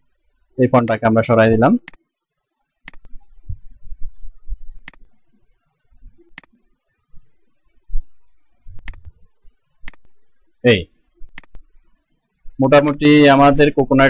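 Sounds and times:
computer mouse button clicking: 0:02.9 - 0:03.1, 0:04.8 - 0:05.1, 0:08.8 - 0:09.1, 0:09.9 - 0:10.2, 0:12.8 - 0:13.0.

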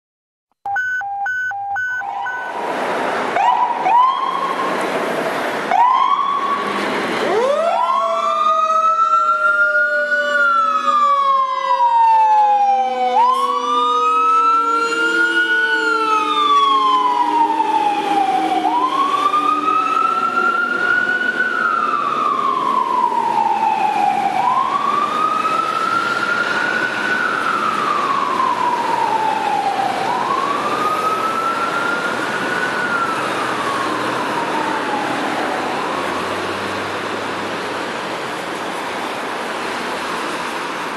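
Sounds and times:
electronic siren wailing: 0:00.7 - 0:02.6
siren short blasts and whoops: 0:00.8 - 0:02.6.

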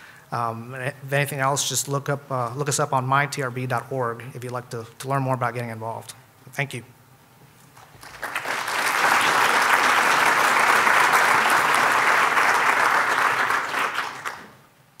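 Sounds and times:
audience applauding: 0:07.8 - 0:14.6.

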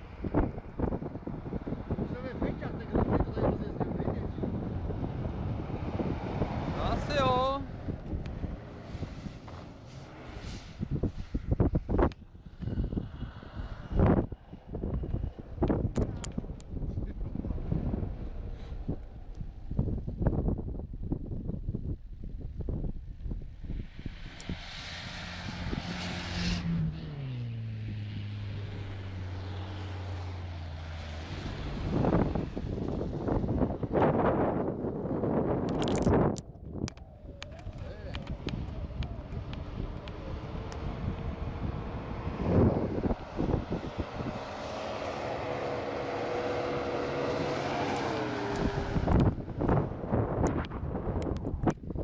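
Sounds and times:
off-road engine driving through snow: 0:00.0 - 0:52.0.

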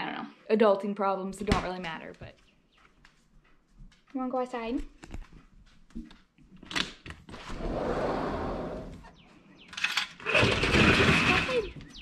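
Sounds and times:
glass door sliding along track: 0:07.3 - 0:09.1.

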